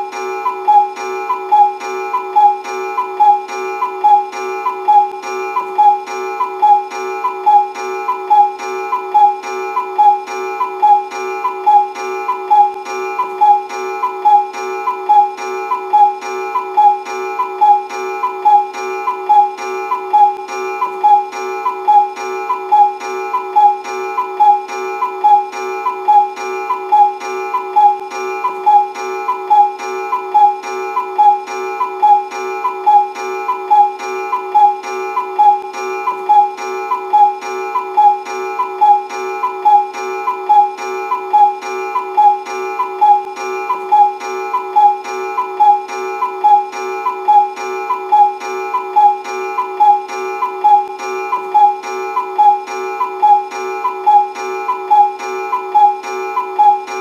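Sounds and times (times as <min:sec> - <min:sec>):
cuckoo clock calling: 0:00.0 - 0:57.0.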